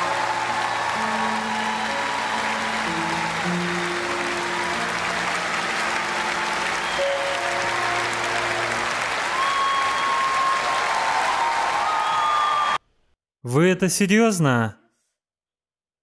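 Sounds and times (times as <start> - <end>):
audience applauding: 0.0 - 12.8.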